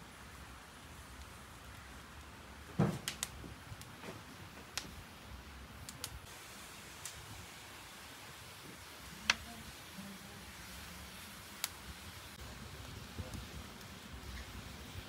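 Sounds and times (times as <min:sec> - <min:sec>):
wood fire crackling: 0:00.0 - 0:15.0
dull thump: 0:02.7 - 0:03.1.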